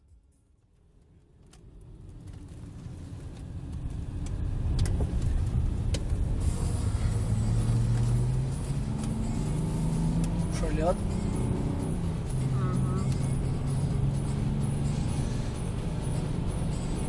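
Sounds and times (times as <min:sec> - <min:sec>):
car engine and tyre rumble: 0:00.0 - 0:17.0.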